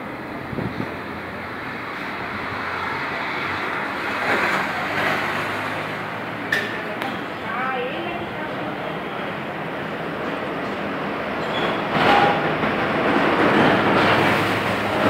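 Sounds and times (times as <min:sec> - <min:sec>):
vehicle passing: 0:00.0 - 0:10.0
road traffic: 0:00.0 - 0:15.0.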